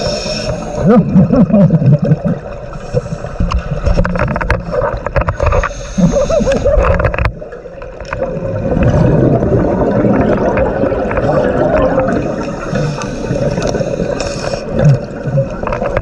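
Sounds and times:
regulator breathing underwater: 0.0 - 0.9, 2.7 - 3.6, 5.3 - 7.0, 12.2 - 14.8
exhaled bubbles gurgling: 0.0 - 16.0.

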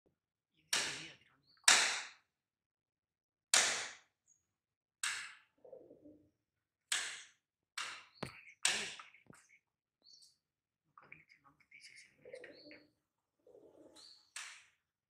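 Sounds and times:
pigeon wing slaps: 1.7 - 2.2, 3.6 - 4.1, 5.0 - 5.4.

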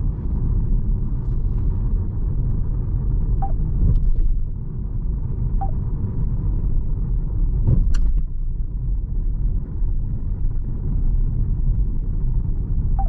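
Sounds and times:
road and tyre rumble in car: 0.0 - 13.0.

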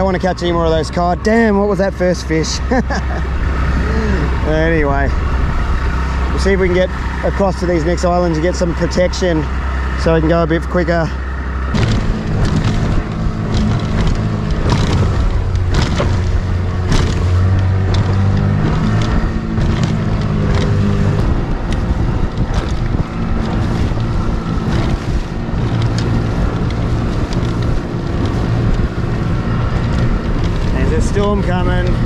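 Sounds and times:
motorboat engine droning: 0.0 - 32.0
wind buffeting microphone: 0.0 - 32.0
hull slapping against water: 11.3 - 32.0.

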